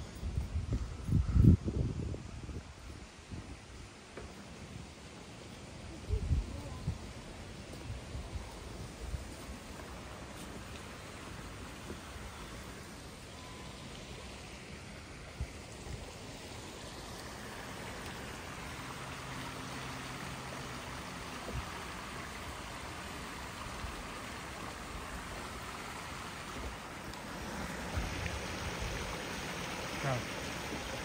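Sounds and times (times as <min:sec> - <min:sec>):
creek rushing over rocks: 0:07.2 - 0:31.0.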